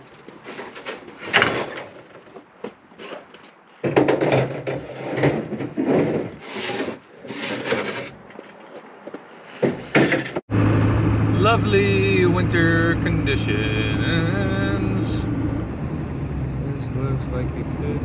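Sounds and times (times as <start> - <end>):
metal ramp scraping and knocking: 0.0 - 8.4, 9.5 - 10.4.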